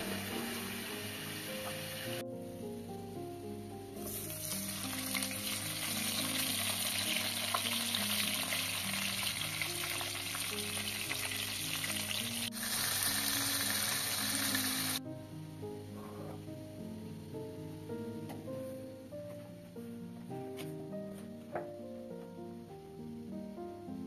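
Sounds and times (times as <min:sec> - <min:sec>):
tomatoes sizzling in a frying pan: 0:00.0 - 0:02.2, 0:04.0 - 0:15.0.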